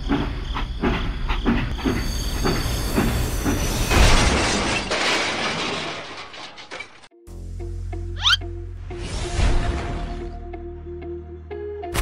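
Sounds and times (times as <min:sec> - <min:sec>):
train clacking over rails: 0:00.0 - 0:05.1.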